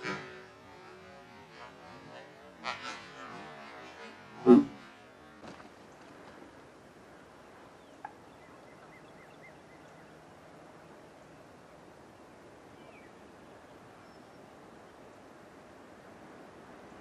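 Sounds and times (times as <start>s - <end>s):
steady background hiss: 0.0s - 17.0s
wild turkeys calling: 7.8s - 9.9s.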